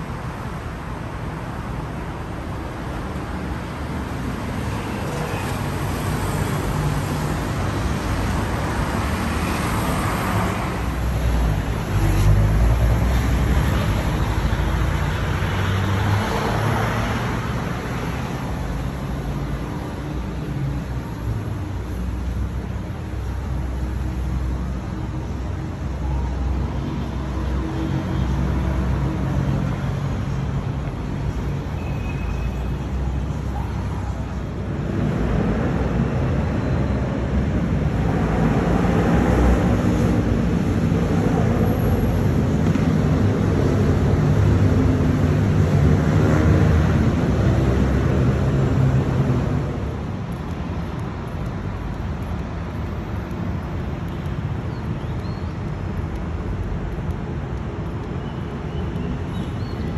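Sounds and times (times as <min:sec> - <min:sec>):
rumble of traffic: 0:00.0 - 0:59.9.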